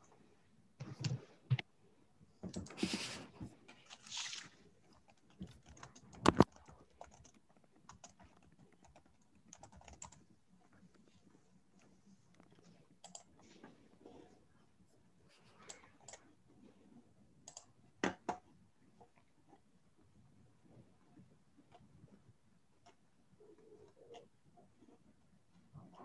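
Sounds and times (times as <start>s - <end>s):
rustling: 2.7s - 5.0s
computer keyboard typing: 5.0s - 10.3s, 13.0s - 13.4s, 17.4s - 17.7s.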